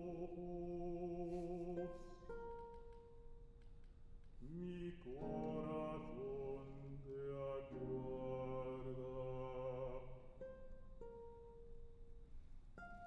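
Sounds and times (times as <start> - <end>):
man singing with vibrato: 0.0 - 2.2, 4.4 - 10.4
classical guitar: 0.0 - 3.7, 4.4 - 13.0.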